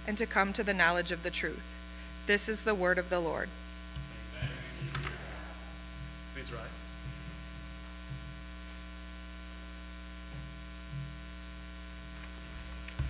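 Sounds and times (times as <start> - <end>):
electrical mains hum: 0.0 - 13.0
faint low thumps: 3.8 - 9.1, 10.2 - 13.0.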